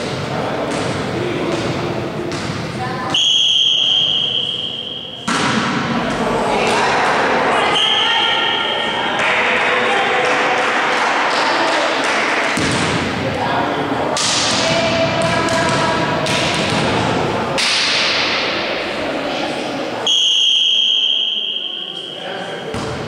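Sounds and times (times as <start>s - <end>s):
players' voices echoing: 0.0s - 23.0s
referee's whistle blast: 3.1s - 5.3s, 20.1s - 22.2s.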